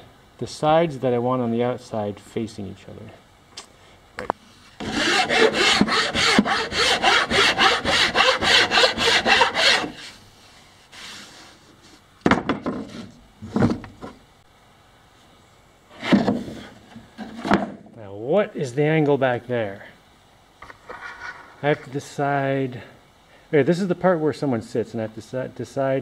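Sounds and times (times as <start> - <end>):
hand file scraping wood: 4.8 - 10.2, 10.9 - 11.6.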